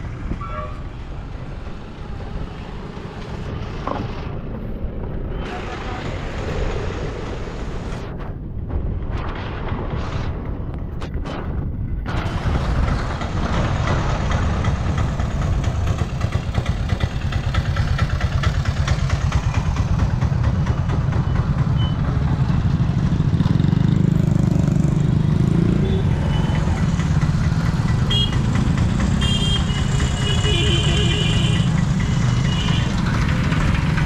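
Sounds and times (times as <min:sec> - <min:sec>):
vehicle engines rumbling: 0:00.0 - 0:34.0
truck diesel engine running: 0:12.1 - 0:24.9, 0:26.4 - 0:34.0.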